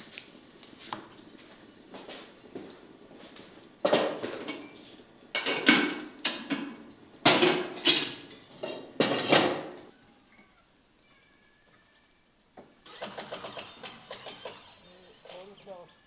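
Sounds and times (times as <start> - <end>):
pots and utensils clattering: 3.8 - 10.5.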